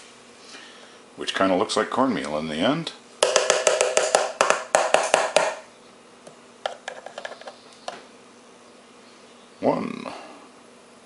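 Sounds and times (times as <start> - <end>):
plastic tub tapping and rattling: 3.2 - 5.6, 6.6 - 8.0.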